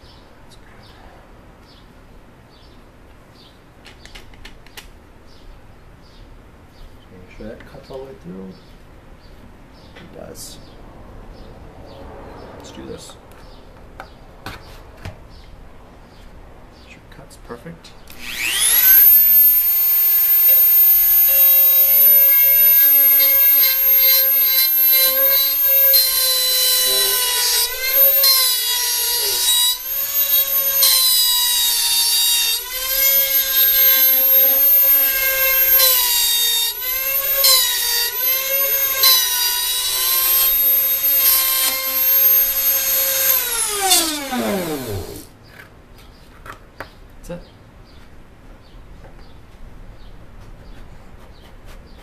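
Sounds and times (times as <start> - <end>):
rotary tool whining: 18.1 - 45.3.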